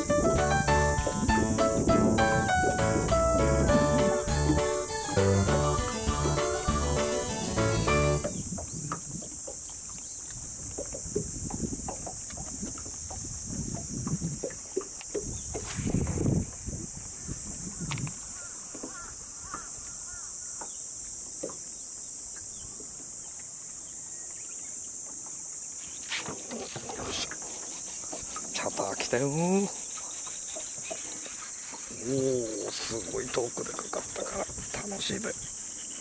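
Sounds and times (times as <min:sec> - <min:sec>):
insects chorus: 0:00.0 - 0:36.0
knocks and rustles of fishing rod: 0:17.9 - 0:19.7.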